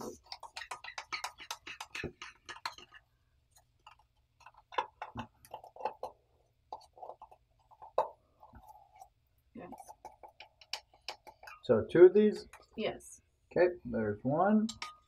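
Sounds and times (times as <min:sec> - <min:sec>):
spoon scraping in a tin: 0:00.0 - 0:03.1.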